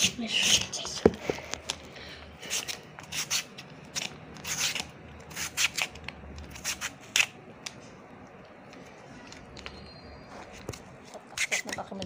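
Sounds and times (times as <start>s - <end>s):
potato slicing strokes: 2.4s - 7.3s, 11.2s - 11.9s.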